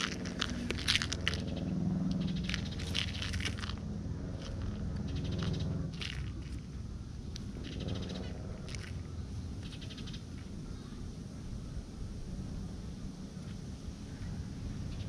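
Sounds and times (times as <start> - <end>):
cat chewing toy: 0.0 - 9.1
grass rustling: 0.0 - 9.8
low rumble: 0.0 - 15.0.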